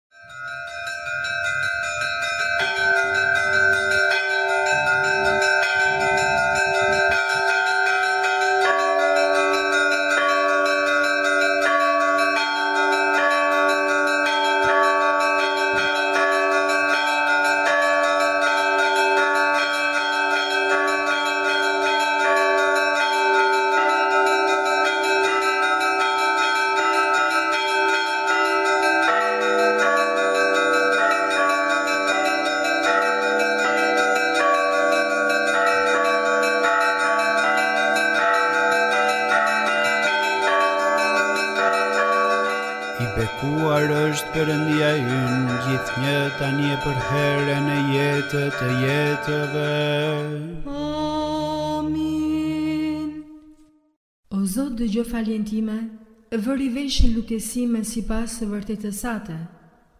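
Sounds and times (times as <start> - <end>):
church bells ringing: 0.1 - 52.6
low rumble: 2.7 - 7.7.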